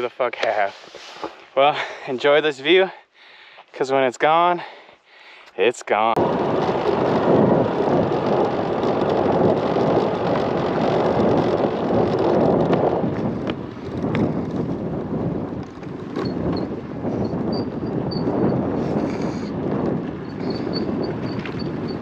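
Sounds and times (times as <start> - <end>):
moped engine running: 6.2 - 16.6
wind rushing over microphone: 6.2 - 22.0.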